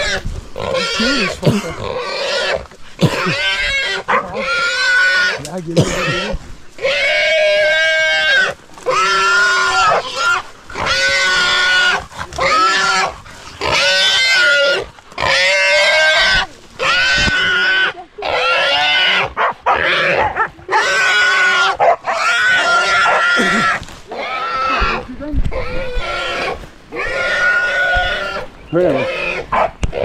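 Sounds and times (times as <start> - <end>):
pig squealing: 0.0 - 30.0.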